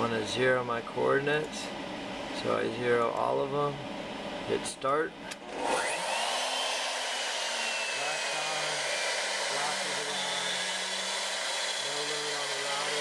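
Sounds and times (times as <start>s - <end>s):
router spindle hissing: 5.6s - 13.0s
faint spindle whine: 7.5s - 13.0s.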